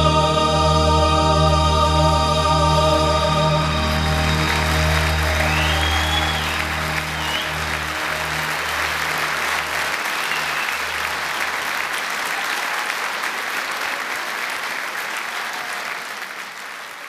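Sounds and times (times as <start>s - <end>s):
audience applauding: 3.8s - 17.0s.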